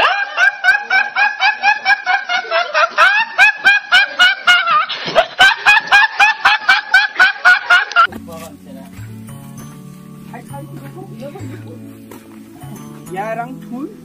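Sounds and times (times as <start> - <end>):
young man laughing: 0.0 - 8.1.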